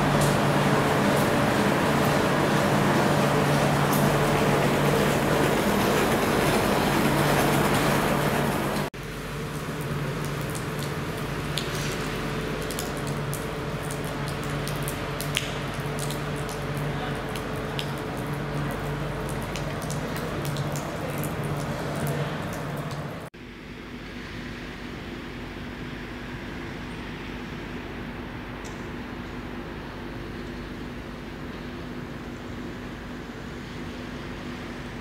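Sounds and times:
drops splashing and dripping: 0.0s - 8.0s, 8.7s - 23.3s
rain pattering on asphalt: 0.0s - 23.3s.

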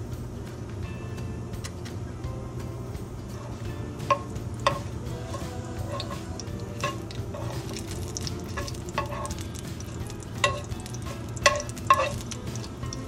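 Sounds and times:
spices sizzling in hot oil: 3.3s - 13.0s
spoon scraping and clinking pan: 4.0s - 13.0s.

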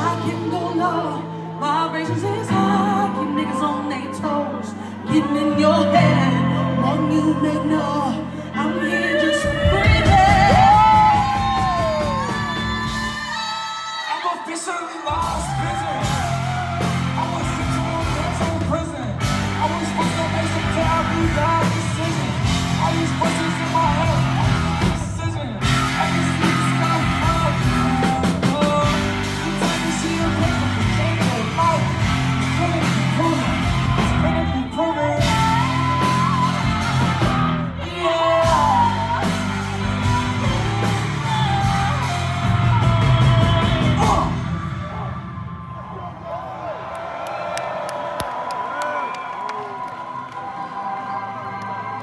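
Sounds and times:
crowd yelling and singing along: 0.0s - 52.0s
live hip-hop music with heavy bass: 9.5s - 45.4s.

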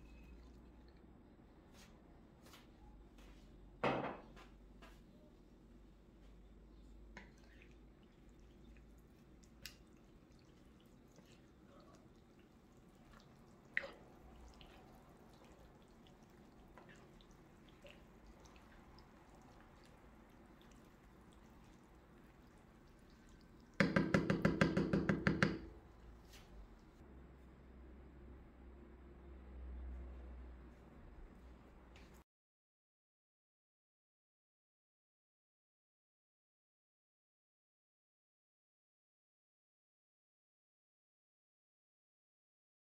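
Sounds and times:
stew squelching when stirred: 0.0s - 1.7s, 6.2s - 27.0s
spoon tapping pan: 23.8s - 25.7s.

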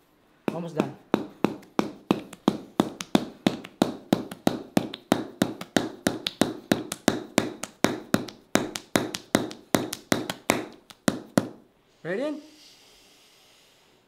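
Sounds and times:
mallet tapping wooden chisel: 0.5s - 11.6s.

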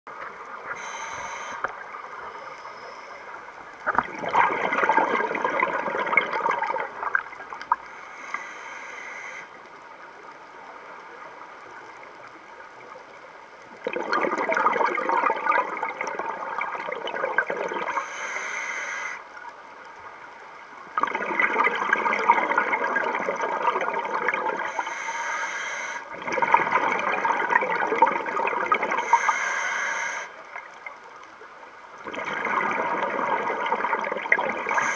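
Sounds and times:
diver breathing through regulator: 0.7s - 1.7s, 7.9s - 9.5s, 17.9s - 19.2s, 24.6s - 26.1s, 28.9s - 30.4s, 34.6s - 34.9s
exhaled air bubbling: 3.6s - 8.4s, 13.7s - 18.1s, 20.8s - 24.9s, 26.0s - 29.4s, 32.0s - 34.9s.

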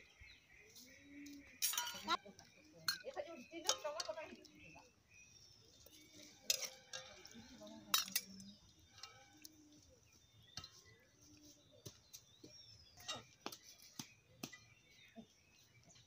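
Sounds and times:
ladle clinking on metal bowls: 1.6s - 4.8s, 5.9s - 11.1s, 13.0s - 13.4s.

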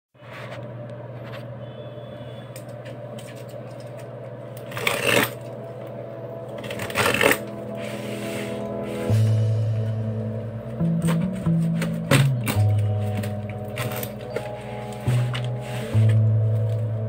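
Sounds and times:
steady low hum: 0.2s - 17.0s
box cutter scraping packing tape: 4.7s - 5.4s, 6.7s - 7.5s.

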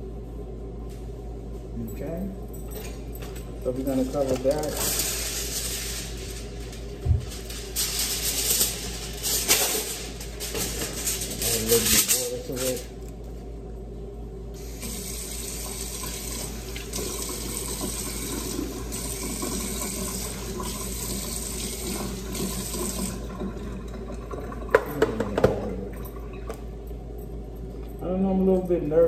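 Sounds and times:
kitchen tap running: 14.6s - 26.7s.

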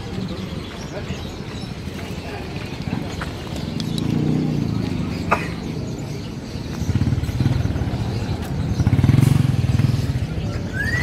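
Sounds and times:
motorcycle engines running: 0.6s - 11.0s.

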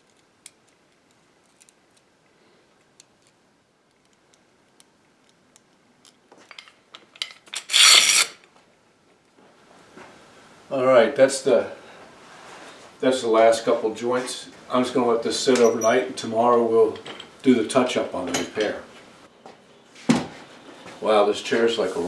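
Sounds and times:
loud metal scrape: 7.6s - 8.4s.

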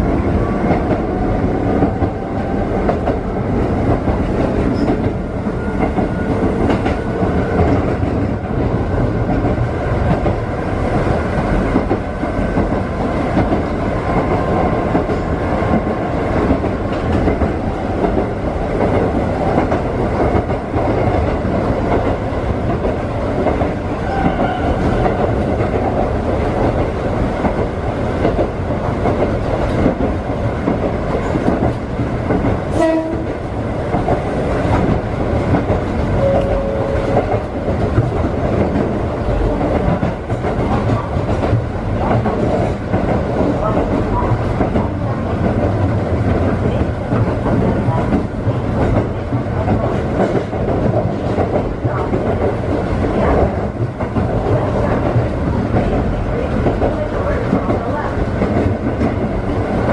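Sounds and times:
brief tones: 36.2s - 37.0s.

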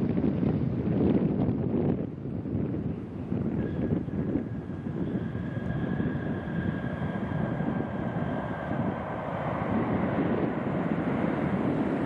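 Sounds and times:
jet engines rushing with whine: 0.0s - 12.0s.

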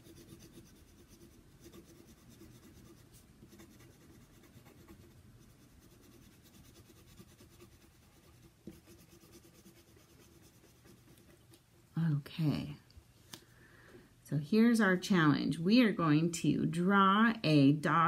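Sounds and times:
pencil scratching on paper: 0.0s - 11.5s.

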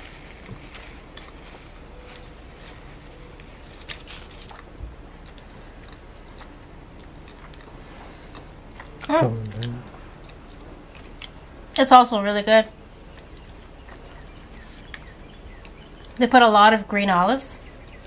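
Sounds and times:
person chewing bagel: 0.0s - 11.4s.

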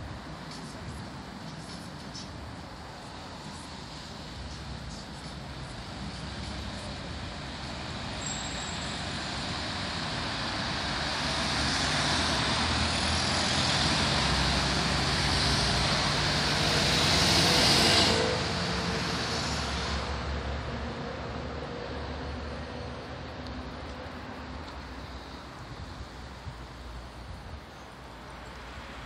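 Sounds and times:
road traffic passing: 0.0s - 29.0s
truck passing close by: 8.0s - 25.4s.

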